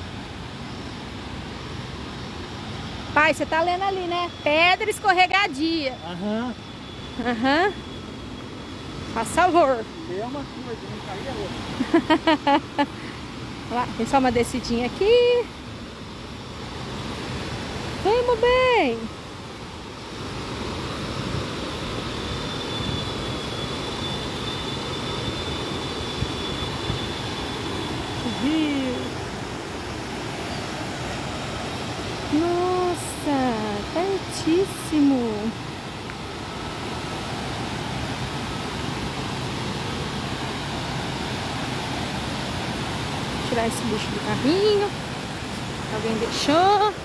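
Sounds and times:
thin high whine: 0:00.0 - 0:47.0
waterfall and rapids rushing: 0:35.5 - 0:47.0.

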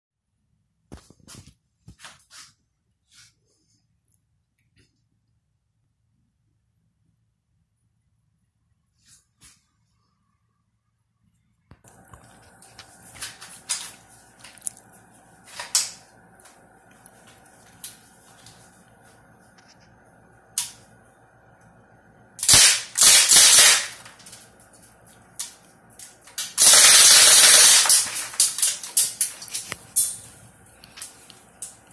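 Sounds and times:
bb gun firing: 0:22.4 - 0:24.0, 0:26.6 - 0:28.3.

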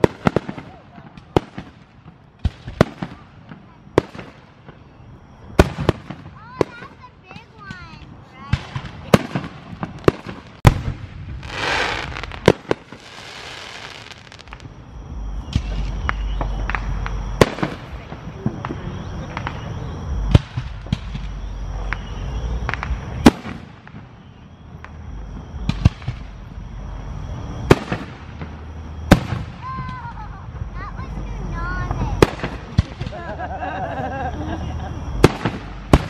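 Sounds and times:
fireworks bursting: 0:00.0 - 0:36.0
hissing rush of fireworks: 0:00.0 - 0:36.0.

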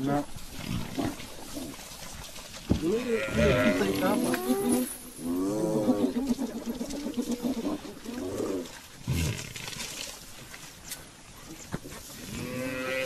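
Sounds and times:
wavering bleat-like animal calls: 0:02.8 - 0:06.4, 0:12.3 - 0:13.0.

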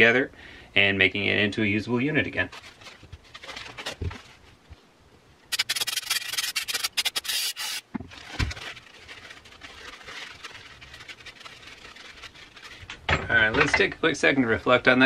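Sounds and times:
stiff brush scrubbing: 0:05.5 - 0:13.0.

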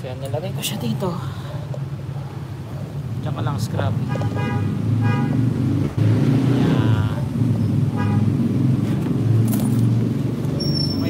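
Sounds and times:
vehicle engine rumble: 0:00.0 - 0:11.0
high horn toots: 0:04.1 - 0:05.5, 0:07.9 - 0:08.3.

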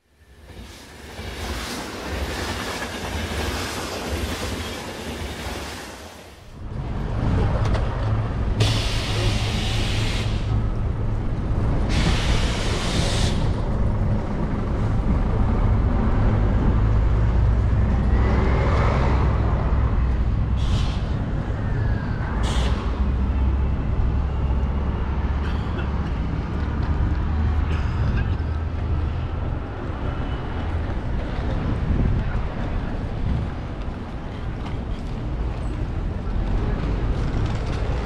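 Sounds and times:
low rumble of road traffic: 0:06.4 - 0:38.0
bus air brakes hissing: 0:08.6 - 0:10.6, 0:11.9 - 0:13.6, 0:20.6 - 0:21.2, 0:22.4 - 0:23.0.

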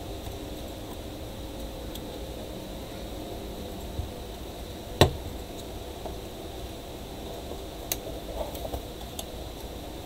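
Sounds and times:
steady hiss: 0:00.0 - 0:10.0.

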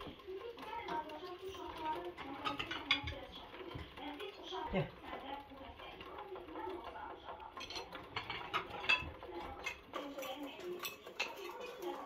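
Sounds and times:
cutlery clinking on china plates: 0:02.2 - 0:03.2, 0:07.5 - 0:12.0.

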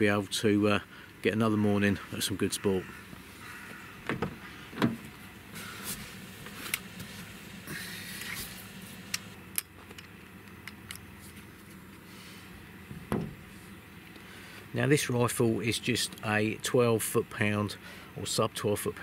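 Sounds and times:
handling clicks and knocks: 0:04.0 - 0:05.2, 0:09.1 - 0:11.8.

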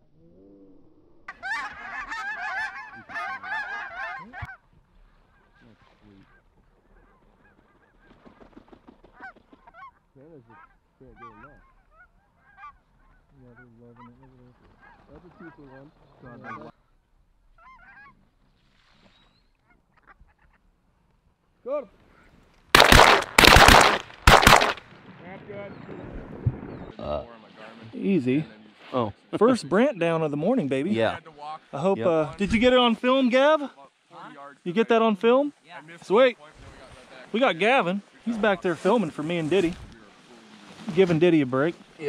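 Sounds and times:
geese honking: 0:01.3 - 0:08.1, 0:09.1 - 0:16.8, 0:17.5 - 0:18.2.

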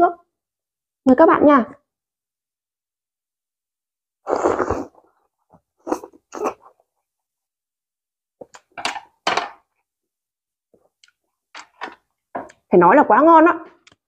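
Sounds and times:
loud bite into food: 0:04.3 - 0:05.0.

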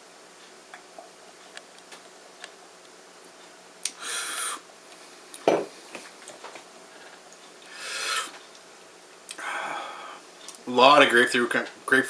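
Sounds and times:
glass set down with knock: 0:05.4 - 0:05.7.

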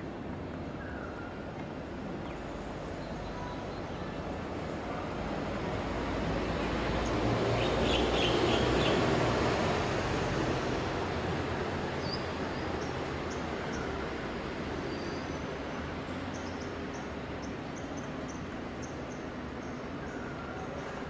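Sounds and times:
passing vehicle rumble: 0:02.5 - 0:14.7.

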